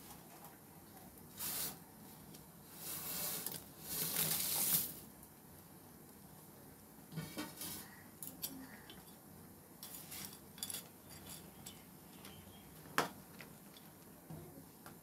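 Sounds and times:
spoon clinking and scraping pan: 9.8s - 11.8s.

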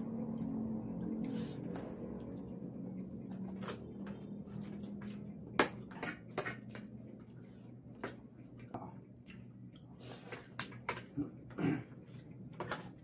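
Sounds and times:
low steady hum: 0.0s - 13.0s
noodles slurped and chewed: 0.0s - 13.0s.

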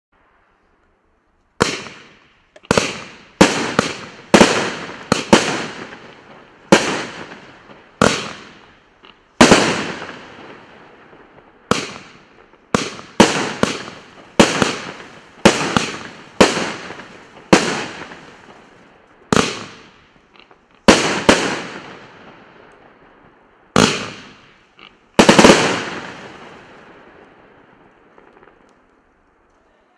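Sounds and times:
firework cake shots firing: 1.6s - 7.4s, 8.0s - 8.7s, 11.7s - 18.6s, 19.3s - 20.2s, 23.8s - 24.6s, 25.2s - 26.6s.

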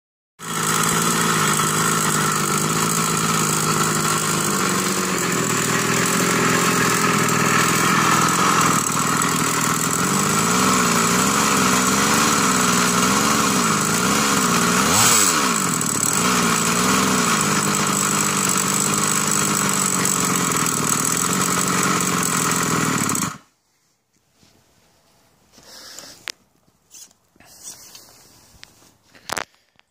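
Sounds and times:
small two-stroke engine running: 0.4s - 23.5s.

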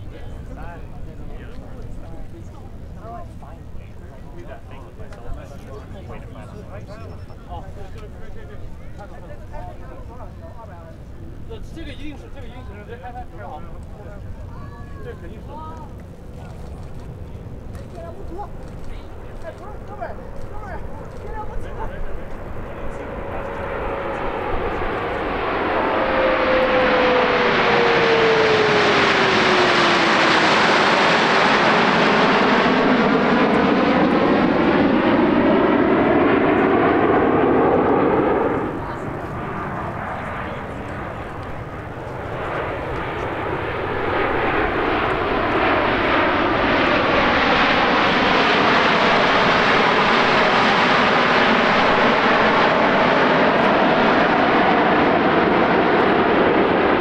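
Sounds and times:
jets flying past: 18.4s - 57.0s.

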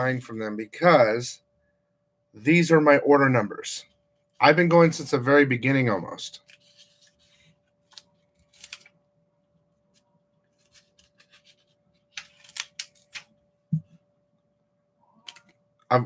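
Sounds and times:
notepad pages rustling: 6.4s - 9.0s, 9.9s - 13.4s.

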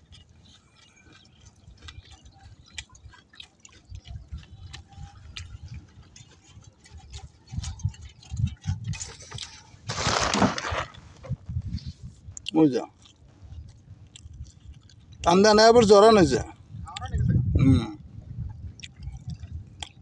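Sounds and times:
small splashes and ticks: 0.0s - 9.8s, 12.3s - 15.4s, 18.7s - 20.0s
water lapping against boat: 0.0s - 10.2s.

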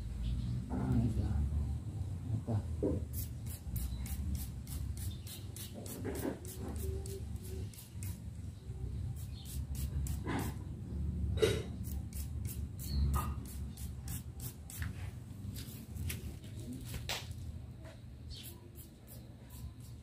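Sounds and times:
spray bottle spritzing: 3.1s - 8.2s.

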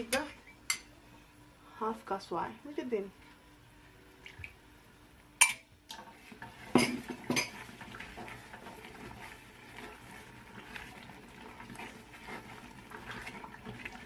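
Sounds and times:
spoon stirring thick paste: 6.3s - 14.0s.

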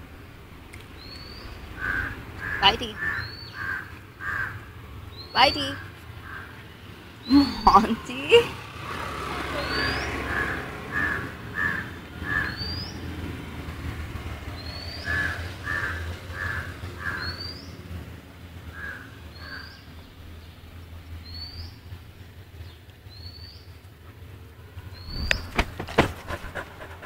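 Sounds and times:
short harsh bird calls: 1.0s - 6.6s, 24.9s - 27.0s
high rising bird chirp: 24.9s - 25.6s
sharp knocks: 25.1s - 26.6s.

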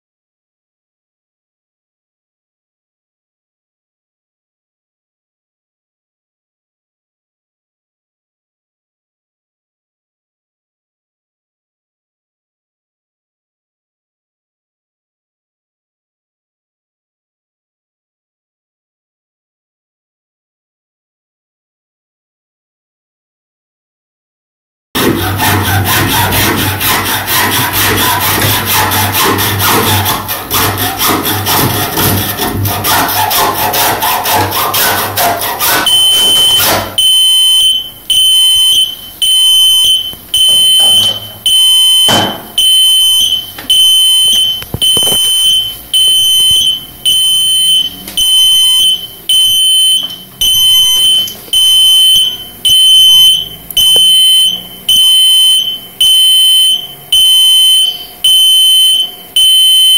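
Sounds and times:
cable being sawn: 25.0s - 52.9s
alarm beeping: 35.8s - 59.9s.

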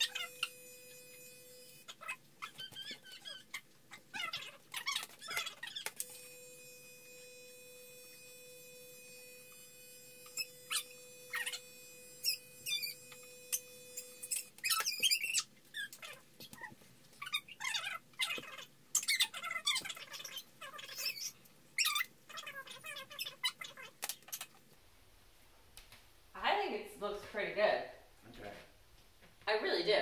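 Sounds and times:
hair clippers humming: 0.0s - 2.0s, 5.8s - 15.2s.

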